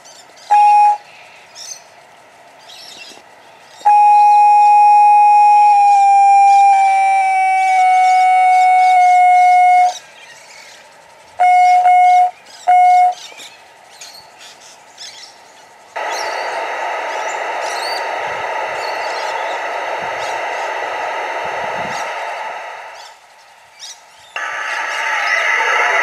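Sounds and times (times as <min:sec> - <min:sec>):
steam whistle: 0:00.5 - 0:01.1, 0:03.8 - 0:10.0, 0:11.4 - 0:13.2.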